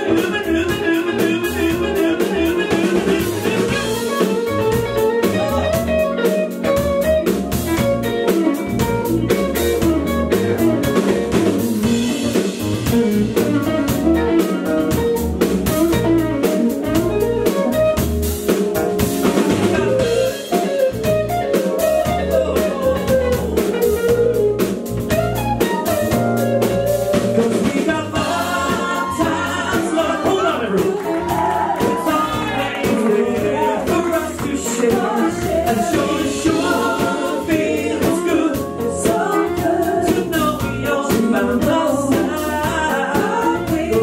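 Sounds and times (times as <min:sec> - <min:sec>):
electric guitar: 0:00.0 - 0:37.8
bass guitar: 0:00.0 - 0:44.0
drum kit: 0:00.0 - 0:44.0
keyboard: 0:00.0 - 0:44.0
voices singing: 0:21.9 - 0:24.2, 0:26.6 - 0:44.0.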